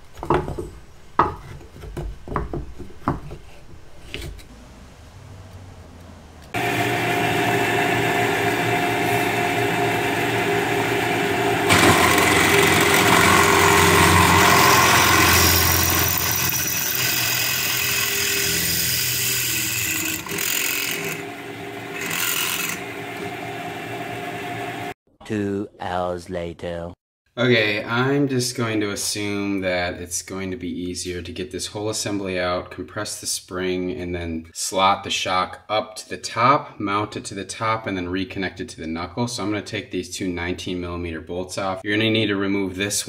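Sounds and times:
drill press running: 6.6s - 25.0s
drill bit cutting into metal: 11.6s - 21.3s, 21.9s - 22.9s.

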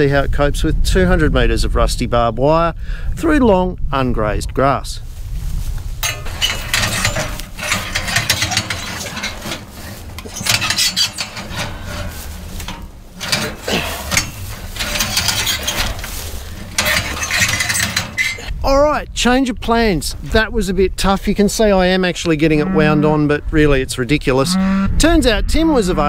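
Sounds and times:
barbed wire dragged through grass: 5.0s - 18.5s
wire winder reel clattering: 5.9s - 18.5s.

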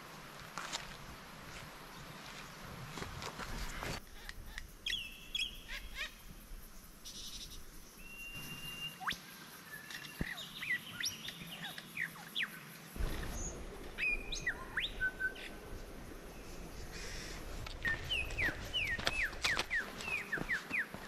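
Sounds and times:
birds whistling: 7.2s - 12.5s, 13.2s - 15.6s, 16.4s - 21.0s.

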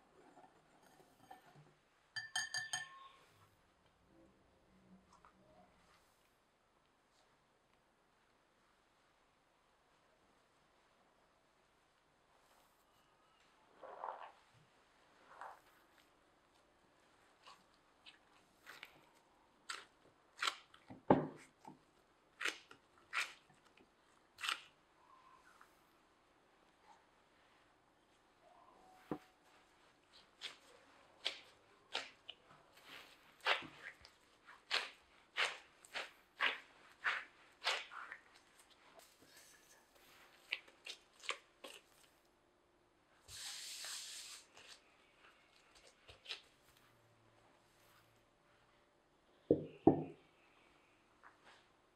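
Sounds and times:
gloved hands kneading dough: 5.0s - 42.4s, 43.2s - 51.9s
dough slapping and pressing: 30.1s - 39.2s.

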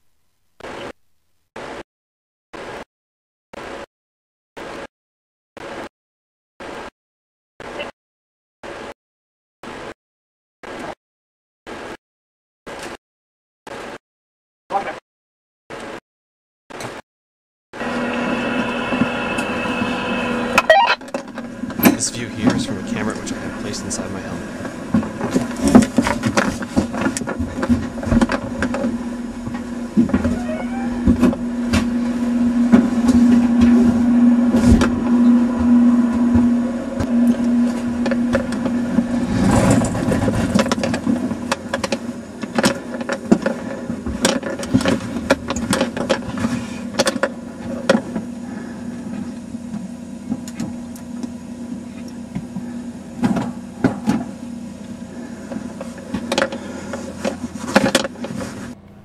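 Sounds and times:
small fan motor hum: 17.8s - 59.0s.

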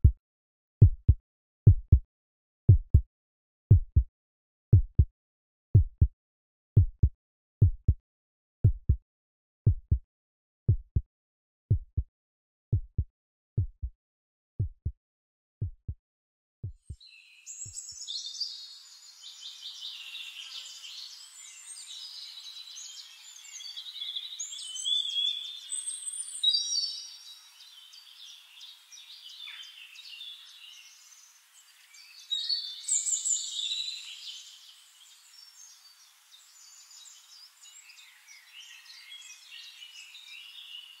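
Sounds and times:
songbirds chirping and trilling: 17.0s - 41.0s.

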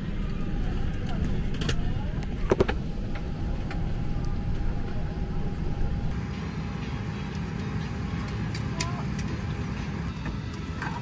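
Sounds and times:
aircraft cabin rumble: 0.0s - 6.2s
faint steady whine: 0.0s - 11.0s.

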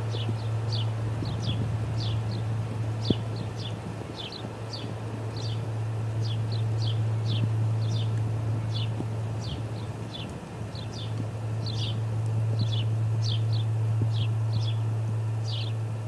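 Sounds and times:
steady low hum: 0.0s - 16.0s
bird chirping: 6.2s - 12.0s, 12.6s - 14.8s.

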